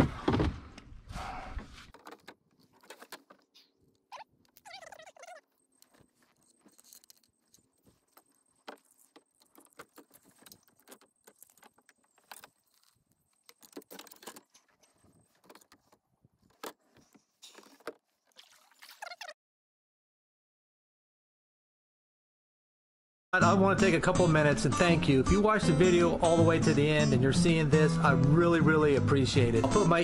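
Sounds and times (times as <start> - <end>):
fishing tackle clicking and rattling: 1.9 - 18.0.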